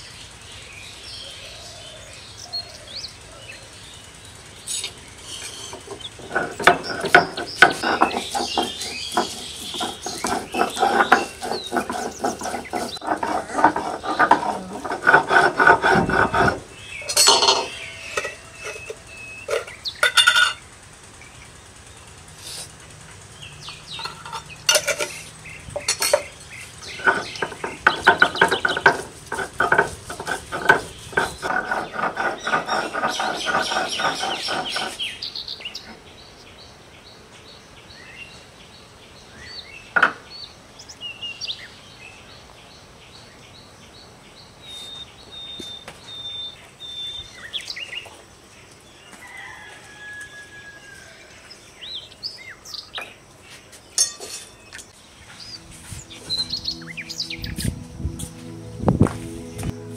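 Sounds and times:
birds chirping: 0.0s - 59.9s
metal utensils clattering on dishes: 5.3s - 20.6s, 23.9s - 35.0s, 54.0s - 54.9s.

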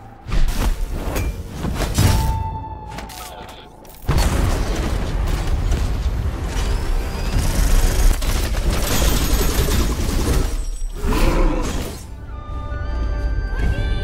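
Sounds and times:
explosions: 4.1s - 7.7s
cinematic music: 11.0s - 14.0s.

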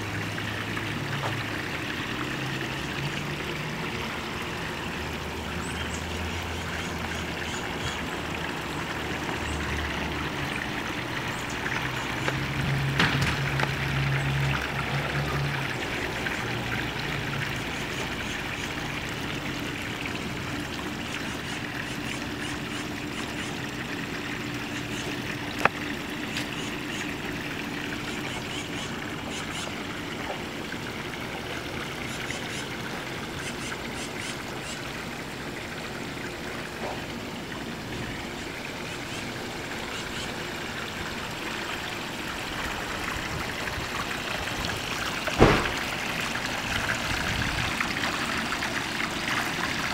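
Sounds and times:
water trickling into pond: 0.0s - 49.9s
sharp knock: 45.4s - 45.7s.

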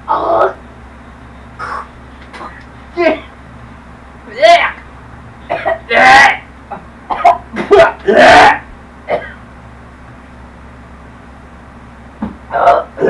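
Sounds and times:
person coughing: 1.6s - 3.4s, 5.5s - 6.0s, 6.7s - 9.4s.

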